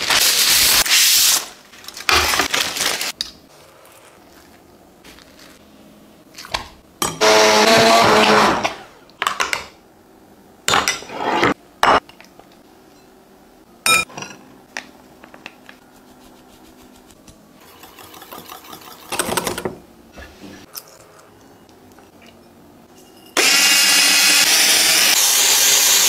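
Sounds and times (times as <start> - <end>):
immersion blender: 7.2 - 8.7, 23.4 - 26.0
utensils clinking on glass bowls: 22.0 - 23.4.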